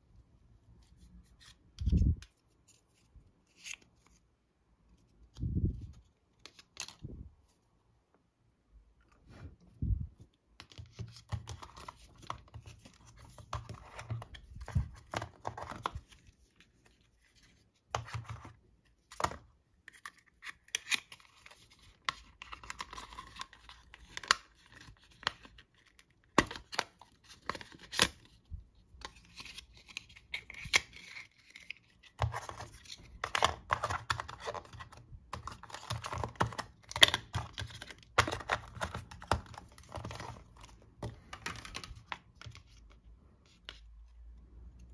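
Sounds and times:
cardboard and paper rustling: 10.6s - 43.9s.

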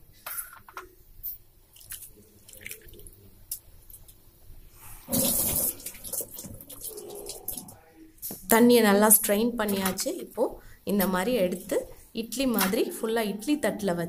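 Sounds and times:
water draining and dripping: 1.8s - 3.2s, 5.1s - 7.8s
water gushing: 5.0s - 7.8s.

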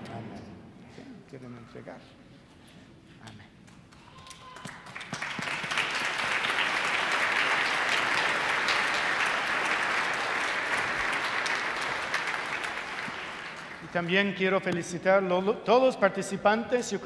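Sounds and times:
congregation applauding: 3.7s - 14.5s.

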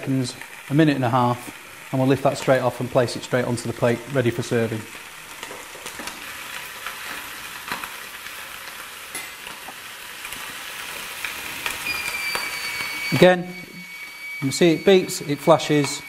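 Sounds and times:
fish sizzling on a grill: 0.0s - 16.0s
grill timer beeping: 11.6s - 16.0s.

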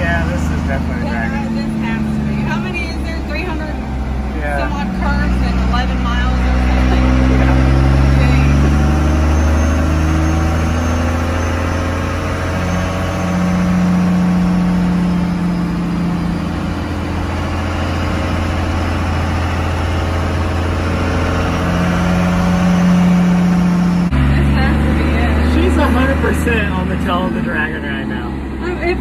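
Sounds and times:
road noise: 0.0s - 29.0s
truck engine revving: 0.0s - 29.0s.

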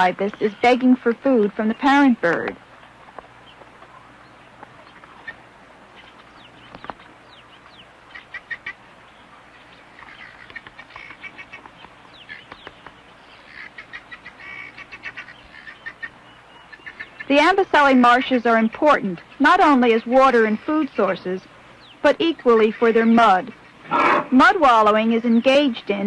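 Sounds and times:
young bird chirping calls: 0.0s - 26.0s.

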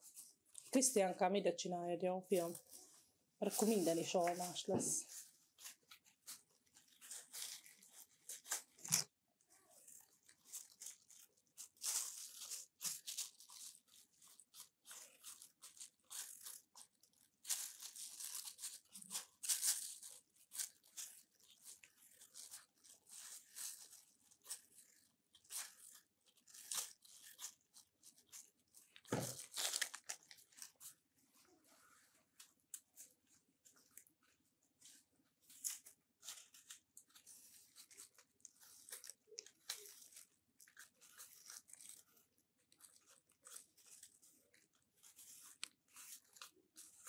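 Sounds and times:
knife peeling apple skin: 5.1s - 9.1s, 9.9s - 30.8s.

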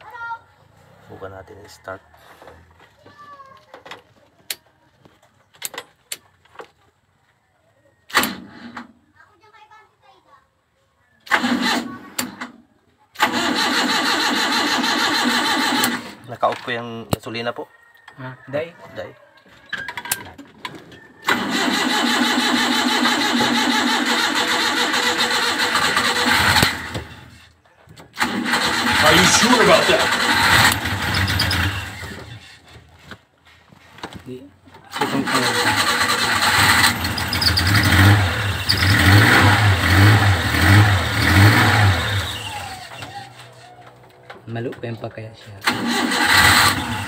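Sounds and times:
starter motor cranking engine: 11.2s - 12.5s, 13.1s - 16.3s, 21.2s - 32.7s, 34.9s - 43.6s, 45.6s - 47.0s.

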